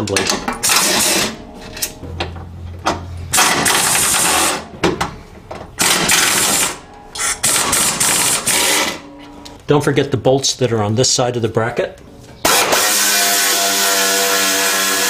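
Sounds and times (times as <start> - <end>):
pneumatic air ratchet bursts: 3.3 - 4.6, 5.8 - 9.0, 12.4 - 15.0.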